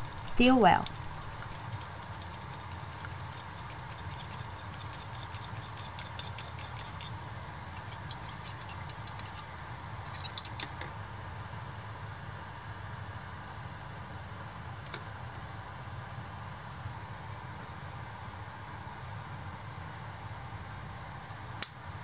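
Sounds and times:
low hum: 0.0s - 4.9s.

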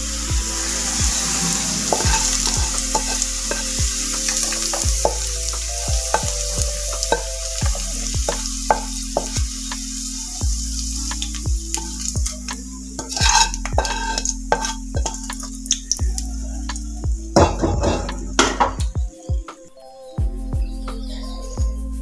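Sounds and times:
hot oil sizzling: 0.0s - 18.8s
spatula scraping metal pan: 0.6s - 5.3s, 13.0s - 15.5s, 17.4s - 18.8s.

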